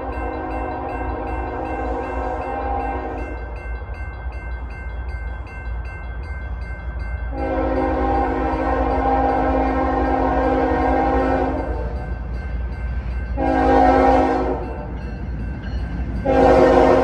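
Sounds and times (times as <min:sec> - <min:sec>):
locomotive horn blasts: 0:00.0 - 0:03.3, 0:07.3 - 0:12.1, 0:13.4 - 0:14.8, 0:16.2 - 0:17.0
crossing bell ringing: 0:00.0 - 0:17.0.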